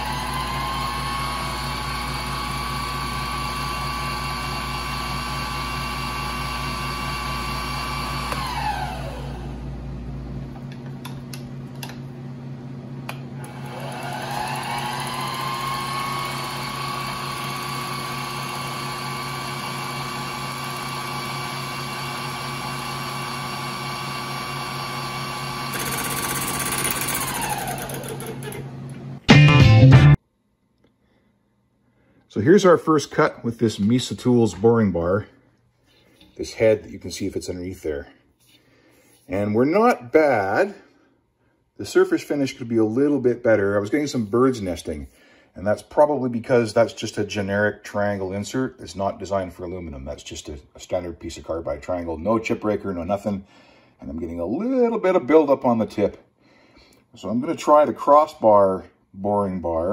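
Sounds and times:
mill spindle whining: 0:00.0 - 0:09.7, 0:13.1 - 0:29.2.

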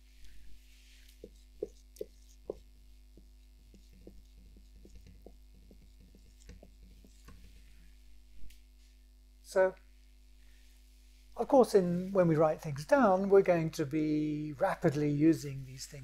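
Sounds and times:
low electrical hum: 0:00.0 - 0:16.0
taps of writing on a board: 0:01.2 - 0:07.6.

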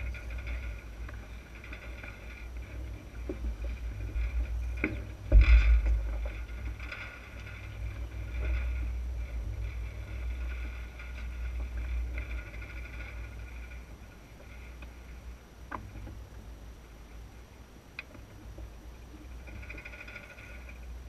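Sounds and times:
wind buffeting microphone: 0:00.0 - 0:14.1
water washing along hull: 0:00.0 - 0:15.0.

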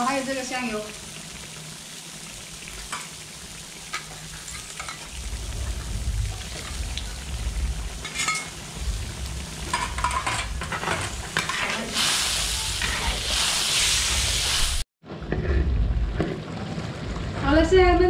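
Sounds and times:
sauce sizzling: 0:00.0 - 0:14.9
metal spatula scraping wok: 0:08.0 - 0:08.6, 0:09.6 - 0:14.1.

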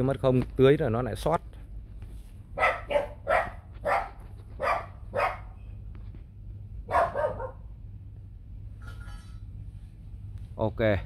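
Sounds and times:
dog barking: 0:02.6 - 0:05.6, 0:06.9 - 0:07.7.

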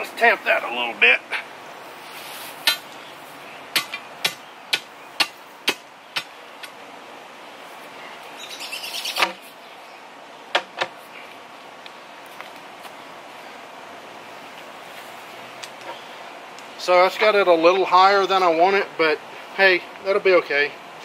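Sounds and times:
steel bar striking gravel: 0:02.5 - 0:02.9.

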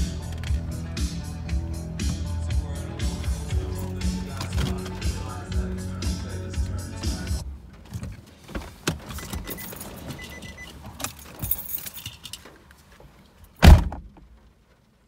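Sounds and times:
car keys jangling: 0:09.0 - 0:12.7
car door slamming: 0:13.6 - 0:14.2.

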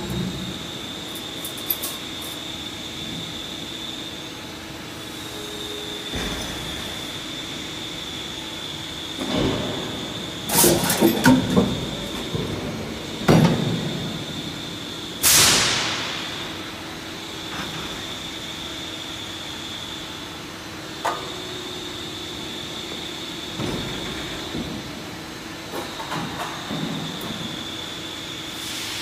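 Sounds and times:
machine hum with high whine: 0:00.0 - 0:29.0
loud hiss: 0:15.2 - 0:16.4.

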